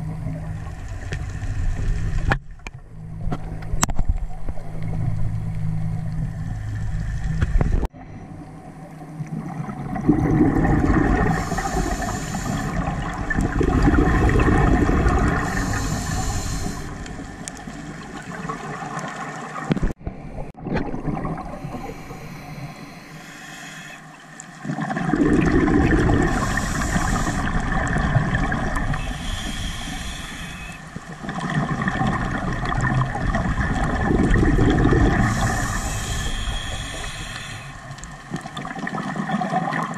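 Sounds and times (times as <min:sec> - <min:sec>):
gurgling exhaust bubbles: 0:09.2 - 0:19.1, 0:24.6 - 0:30.3, 0:30.9 - 0:39.9
regulator hissing inhalations: 0:11.3 - 0:12.8, 0:15.3 - 0:17.1, 0:21.6 - 0:24.2, 0:26.3 - 0:27.5, 0:29.0 - 0:30.9, 0:35.2 - 0:37.9.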